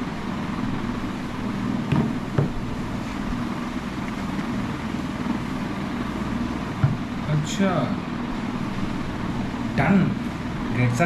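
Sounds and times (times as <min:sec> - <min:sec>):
low background hum: 0:00.0 - 0:11.0.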